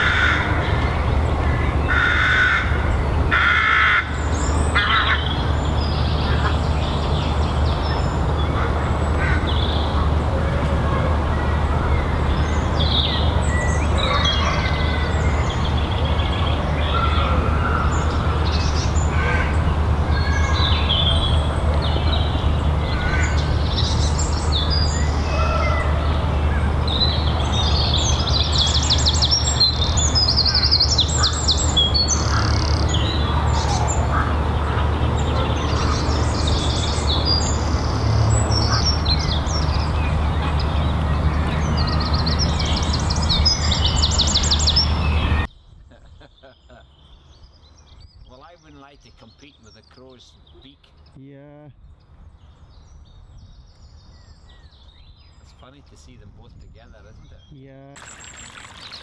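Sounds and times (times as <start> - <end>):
songbirds chirping and singing: 0.0 - 59.0.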